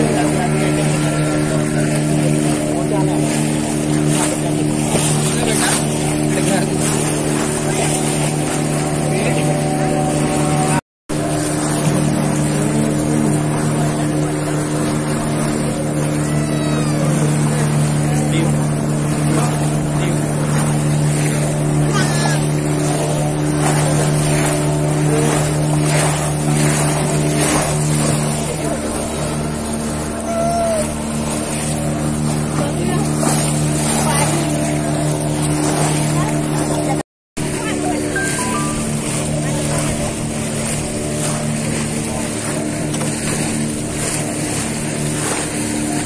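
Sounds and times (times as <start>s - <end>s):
motorboat engine humming: 0.0s - 46.0s
water rushing past boat: 0.0s - 46.0s.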